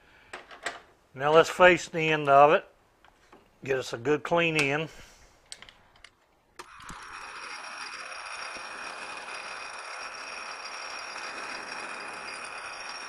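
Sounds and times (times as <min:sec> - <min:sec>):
metal lathe whining: 0:06.6 - 0:13.0.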